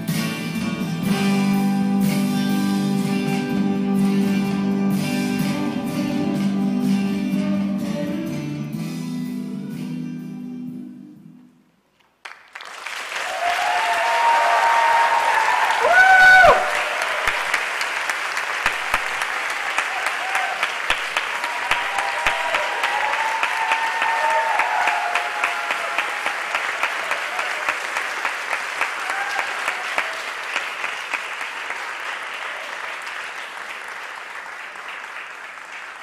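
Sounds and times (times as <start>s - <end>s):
audience applauding: 12.0s - 36.0s
audience cheering: 12.5s - 36.0s.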